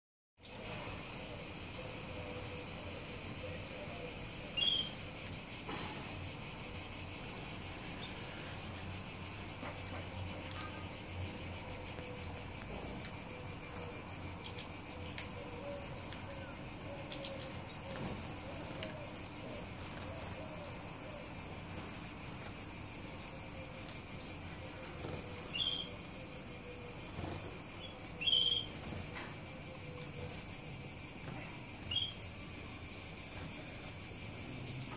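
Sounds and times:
insects droning: 0.4 - 34.9
bird chirps: 4.5 - 5.0, 25.5 - 26.0, 28.2 - 28.8.

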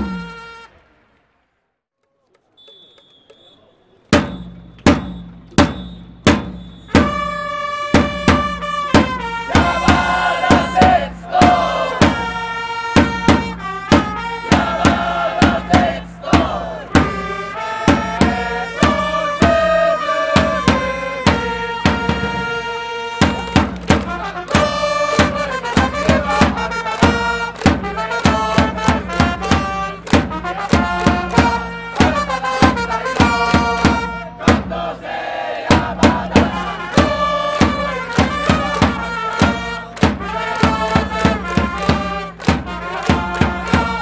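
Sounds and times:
trumpets playing cheering melody: 0.0 - 1.1, 6.6 - 44.0
stadium crowd: 0.0 - 44.0
drum beats: 4.1 - 44.0
fans chanting: 9.1 - 13.2, 14.1 - 44.0.

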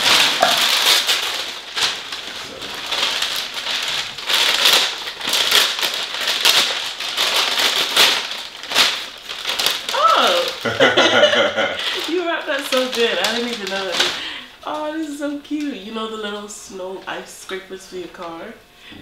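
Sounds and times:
paper ripping: 0.0 - 10.8, 11.8 - 14.2
wrapping paper crinkling: 0.0 - 16.5.

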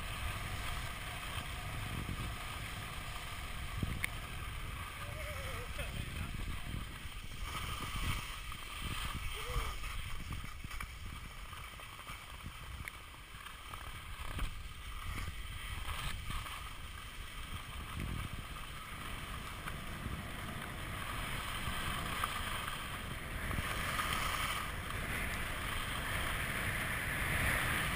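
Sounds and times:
skis hissing over snow: 0.0 - 27.9
wind noise on microphone: 0.0 - 27.9.

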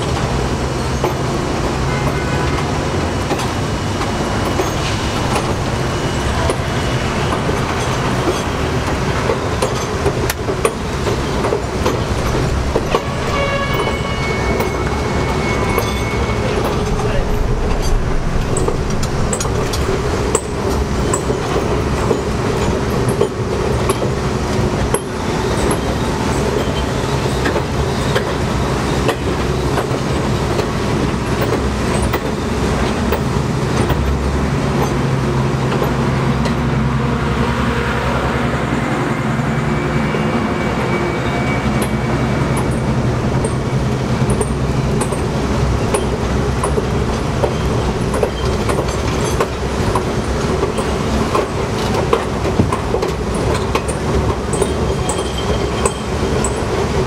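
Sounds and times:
wheels clicking over rails: 0.0 - 36.8, 41.6 - 57.0
subway train rumbling on track: 0.0 - 57.0
faint high squeal: 13.2 - 19.4.

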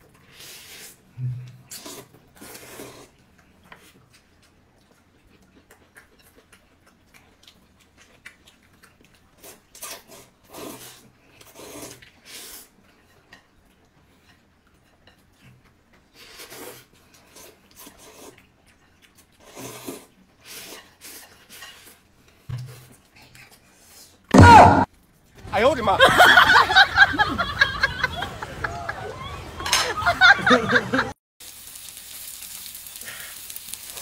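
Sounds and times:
person eating noisily: 0.1 - 24.3, 31.5 - 34.0.

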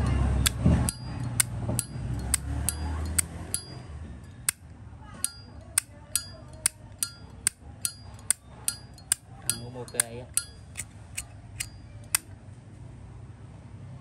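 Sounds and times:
lighter lid clicking open and shut: 0.4 - 3.7.

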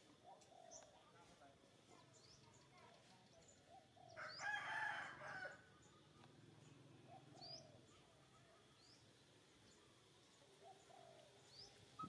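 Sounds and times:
small birds chirping: 0.0 - 12.0
rooster crowing: 4.2 - 5.6.

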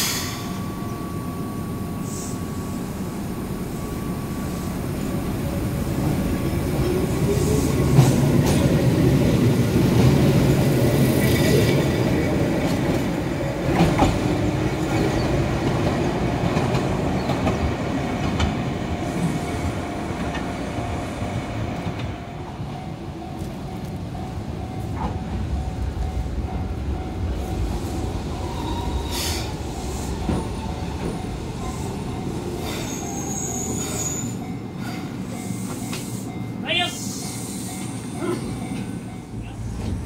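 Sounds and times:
tram running noise: 0.0 - 40.0
tram wheels clicking over rail joints: 6.0 - 18.7.

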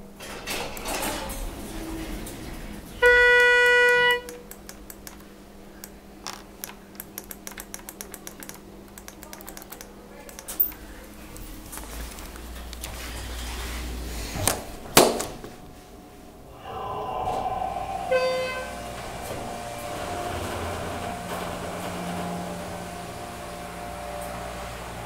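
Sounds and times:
elevator doors shutting: 0.0 - 11.7, 16.4 - 25.0
elevator mechanical hum and whine: 0.0 - 25.0.

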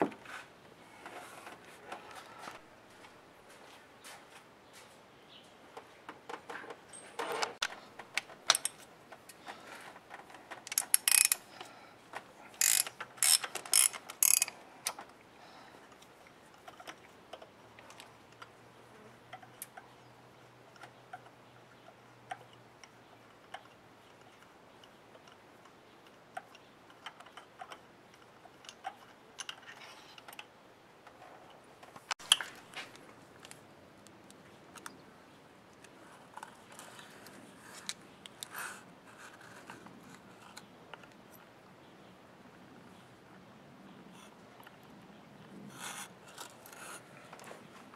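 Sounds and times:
metal tools clicking and tapping: 8.0 - 9.4, 10.1 - 11.7, 12.6 - 15.0
ratchet wrench clicking: 10.7 - 11.4, 12.6 - 14.6.

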